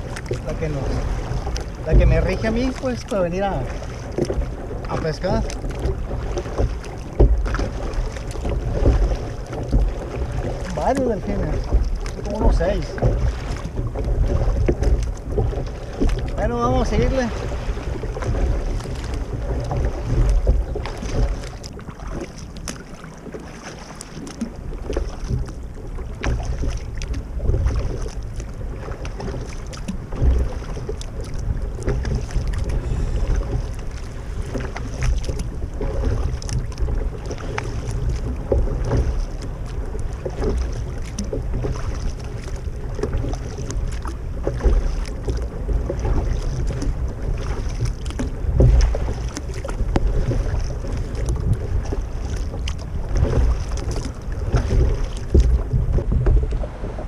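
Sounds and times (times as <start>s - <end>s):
paddle splashing in water: 0.0s - 57.0s
wind on microphone: 24.7s - 57.0s.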